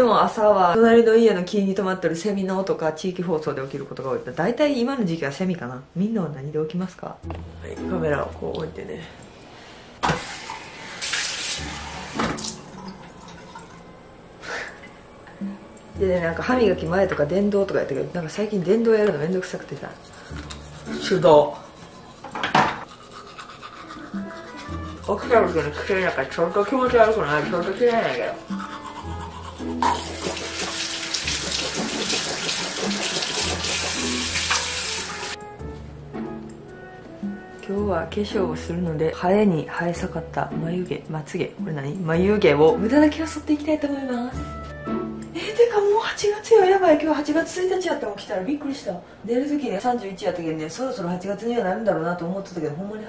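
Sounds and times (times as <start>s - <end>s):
water running from tap: 10.1s - 13.9s, 25.1s - 35.4s
water splashing: 29.9s - 35.4s.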